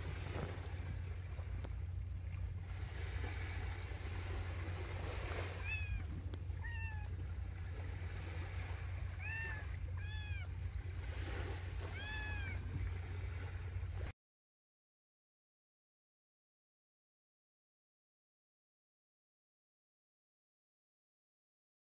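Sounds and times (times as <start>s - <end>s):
steady low rumble: 0.0s - 14.1s
kitten meowing: 5.5s - 7.2s, 9.1s - 10.6s, 11.8s - 12.7s.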